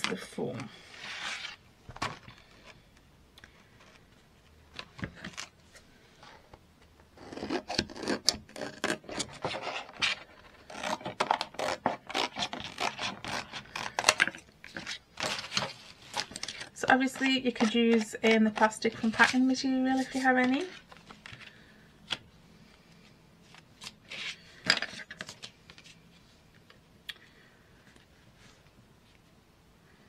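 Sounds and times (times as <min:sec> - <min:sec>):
scissors snipping plastic: 0:10.7 - 0:15.6.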